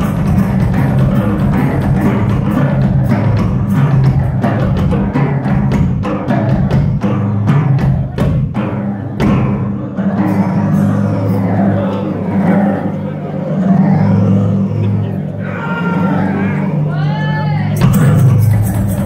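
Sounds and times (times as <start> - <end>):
drum solo on toms and snare: 0.0 - 10.7.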